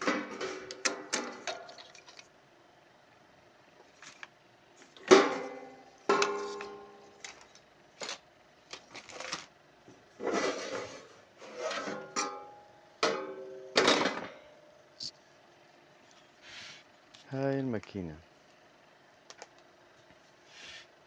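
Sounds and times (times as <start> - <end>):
loose metal panel scraping and rattling: 10.2 - 12.3.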